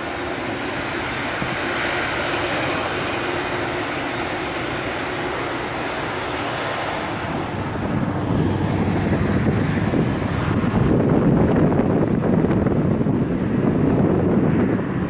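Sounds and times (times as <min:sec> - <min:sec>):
jet engines running with whine: 0:00.0 - 0:15.0
deep rumble: 0:06.4 - 0:15.0.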